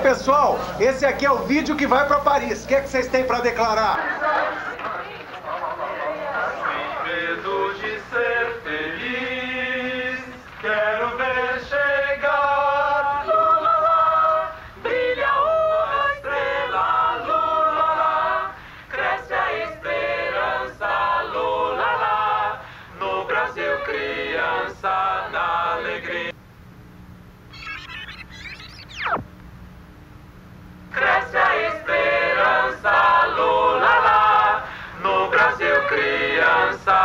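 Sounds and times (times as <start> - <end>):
group singing in chorus: 4.0 - 26.4, 30.9 - 37.0.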